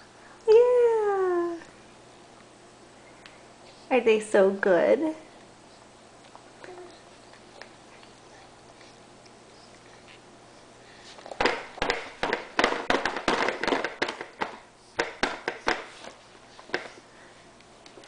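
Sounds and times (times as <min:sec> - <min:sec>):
hands slapping plastic tray: 0:11.4 - 0:16.0.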